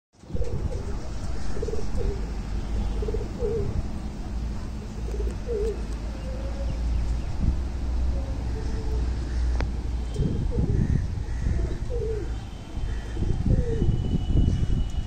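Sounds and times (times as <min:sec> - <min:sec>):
pigeons cooing: 0:00.2 - 0:04.0, 0:04.9 - 0:06.8, 0:08.1 - 0:13.9.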